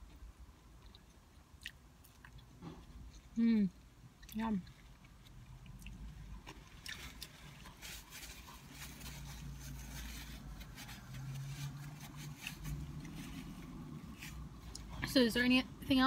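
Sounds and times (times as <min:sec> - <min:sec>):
chewing and mouth sounds: 0:00.0 - 0:09.3
low steady hum: 0:00.0 - 0:16.0
paper wrapper crinkling: 0:06.6 - 0:14.7.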